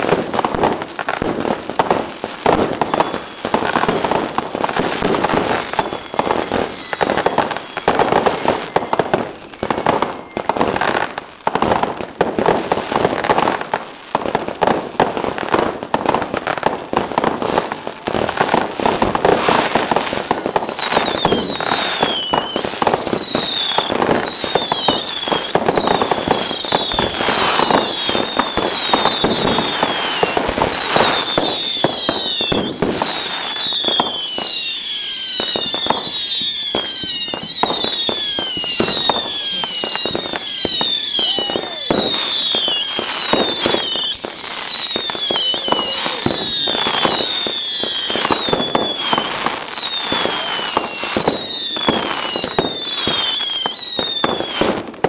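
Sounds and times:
fireworks bangs and crackles: 0.0s - 55.0s
fireworks whistles falling in pitch: 0.0s - 55.0s.

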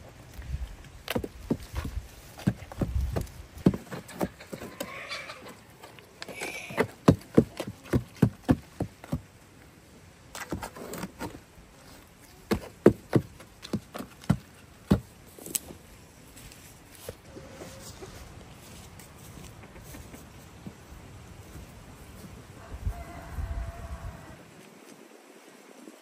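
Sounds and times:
goats tearing at grass: 15.3s - 15.8s.

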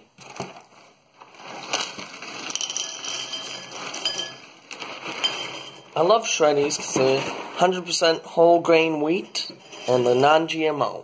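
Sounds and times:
cereal pouring into ceramic bowl: 1.4s - 6.0s.

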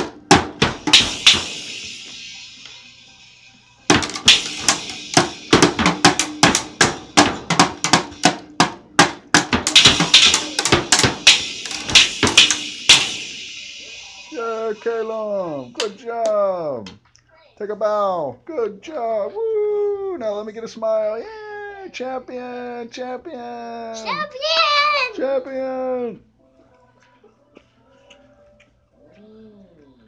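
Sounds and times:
toy drums being hit: 0.0s - 16.4s
cymbal wash: 0.8s - 8.4s, 9.7s - 16.0s.

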